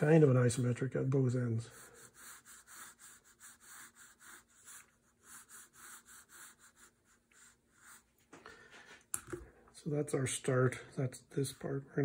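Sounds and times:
pencil scratching on paper: 1.7 - 8.2.

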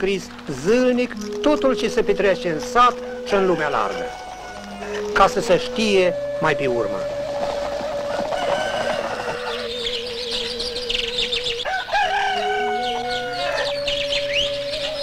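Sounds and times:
held musical note: 0.0 - 15.0
rooster crowing: 3.3 - 5.4, 7.8 - 9.8, 11.5 - 14.4
small birds chirping: 8.9 - 15.0.

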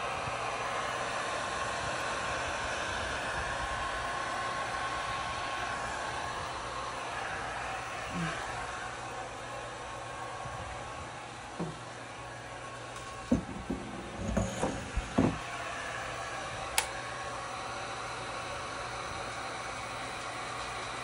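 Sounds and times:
heat gun blowing hum: 0.0 - 21.0
tray knocking and clattering: 13.3 - 15.4
sharp click: 16.8 - 17.0.

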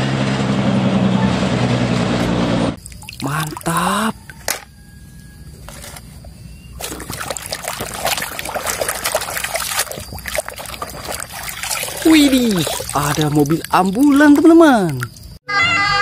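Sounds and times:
water sloshing in a basin: 2.8 - 4.9, 5.6 - 15.4.

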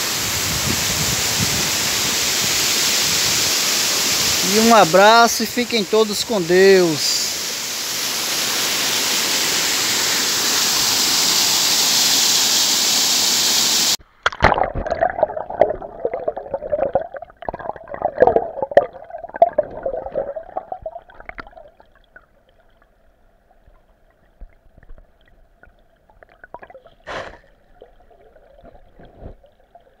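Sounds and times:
water rushing over rock: 0.2 - 21.6
muffled underwater bubbling: 14.3 - 22.2.

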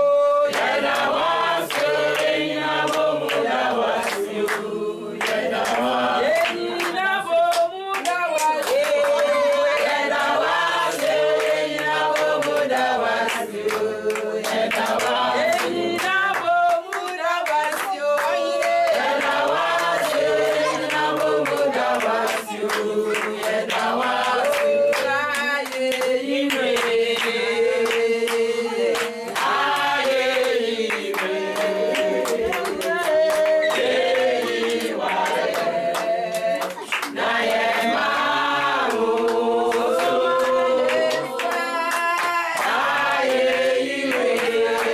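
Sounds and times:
group of voices singing: 0.0 - 44.9
hands clapping in time: 0.5 - 44.9.

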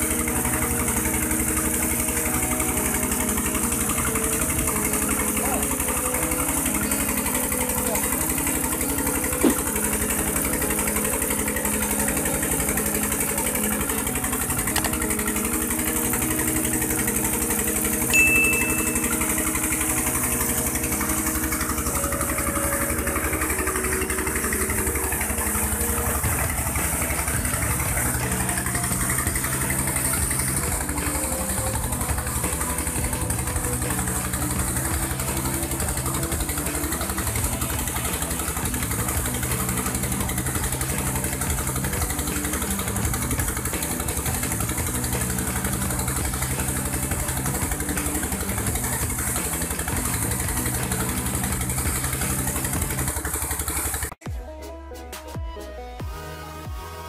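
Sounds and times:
water gushing and splashing: 0.0 - 54.2
diesel engine running: 0.0 - 54.3
brief high tone: 18.1 - 19.7.

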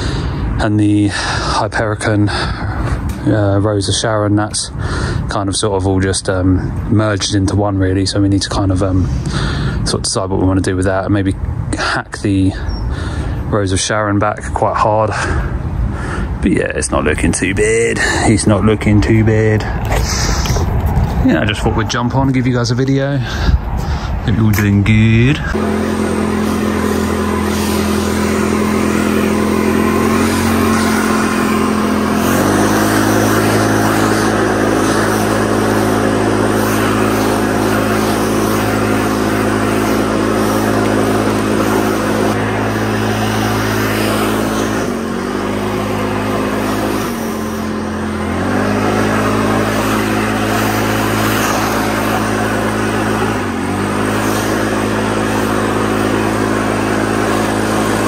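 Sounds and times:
lawn mower engine running: 0.0 - 3.8, 17.0 - 58.0.

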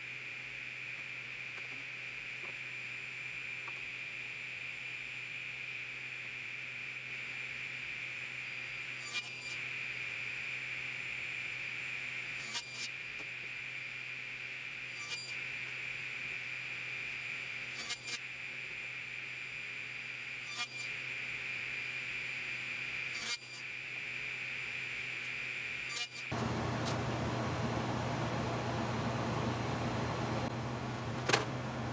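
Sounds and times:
table saw whining: 8.4 - 9.6, 14.7 - 15.4, 17.6 - 18.2, 20.4 - 21.0, 25.8 - 31.9.

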